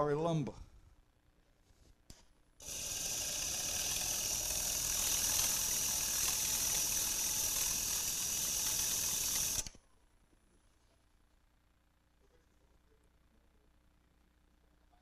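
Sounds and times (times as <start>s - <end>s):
sanding disc grinding wood: 2.6s - 9.6s.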